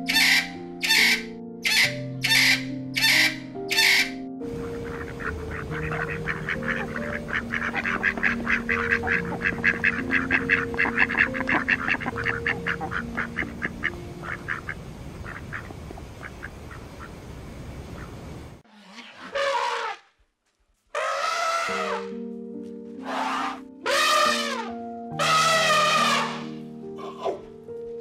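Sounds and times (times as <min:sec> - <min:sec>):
ducks quacking: 0:00.1 - 0:17.2, 0:23.0 - 0:27.4.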